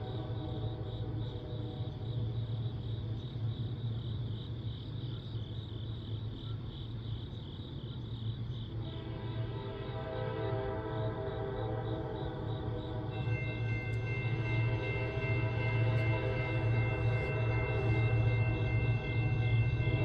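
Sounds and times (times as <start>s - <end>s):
distant locomotive horn: 0.0s - 2.6s, 8.8s - 20.0s
crickets chirping: 0.0s - 20.0s.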